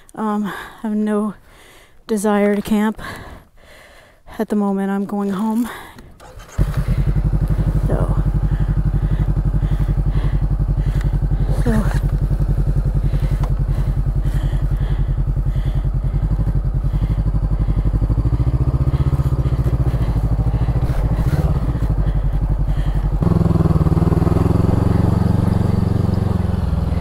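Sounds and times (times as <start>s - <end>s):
motorcycle engine pulsing: 6.1s - 27.0s
louder engine note: 6.5s - 27.0s.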